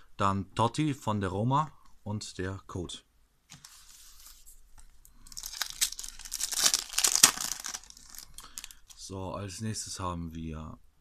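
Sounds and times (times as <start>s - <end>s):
foil wrapper tearing and crinkling: 5.2s - 9.0s.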